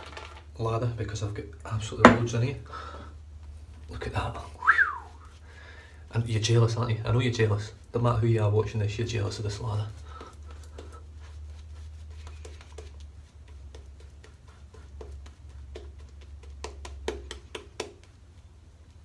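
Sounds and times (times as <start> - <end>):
shaving brush lathering face: 6.4 - 18.2.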